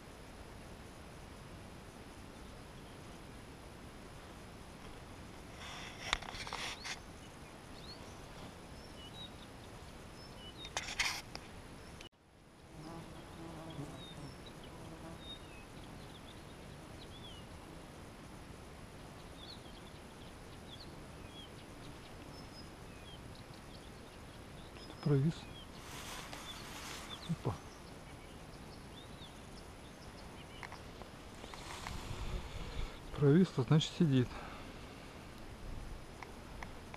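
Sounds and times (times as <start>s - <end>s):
faint insect buzz: 0.0s - 36.9s
rustle: 0.0s - 36.9s
soft background noise: 0.0s - 36.9s
small bird chirps: 19.1s - 31.8s.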